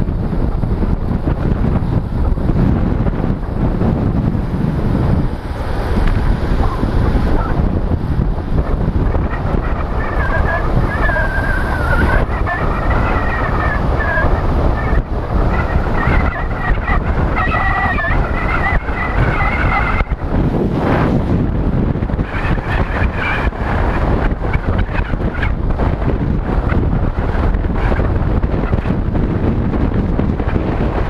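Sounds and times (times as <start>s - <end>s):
wind buffeting microphone: 0.0s - 31.0s
wavering high whistle: 9.3s - 20.2s.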